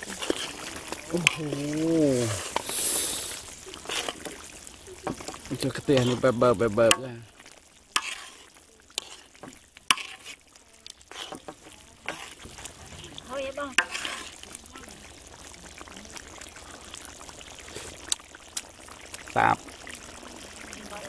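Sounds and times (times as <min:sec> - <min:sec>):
metal spoon scraping a wok: 0:00.0 - 0:04.5, 0:05.1 - 0:07.1, 0:07.9 - 0:14.5
stew bubbling and sizzling: 0:00.0 - 0:21.0.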